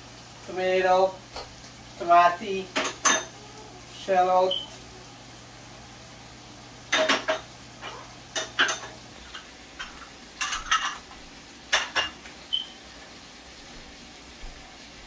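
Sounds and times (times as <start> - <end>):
dishes and utensils clinking: 2.7 - 3.4, 6.9 - 12.3.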